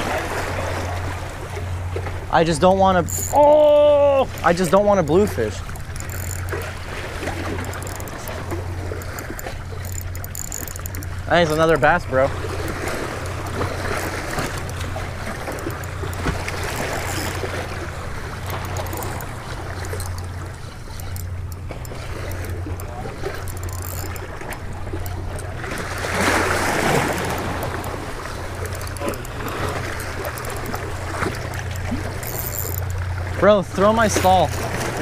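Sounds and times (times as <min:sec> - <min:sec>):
sea washing against rocks: 0:11.1 - 0:32.2.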